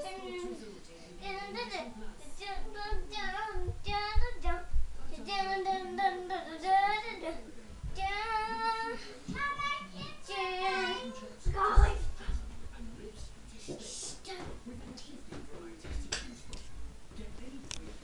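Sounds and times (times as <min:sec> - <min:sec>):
child singing: 0:00.0 - 0:07.4, 0:08.0 - 0:12.1.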